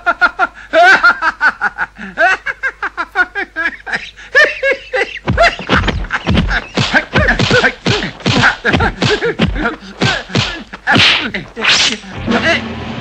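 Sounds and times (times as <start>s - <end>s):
punch thwacks and swishes: 5.3s - 12.1s
fighters shouting: 6.3s - 12.2s.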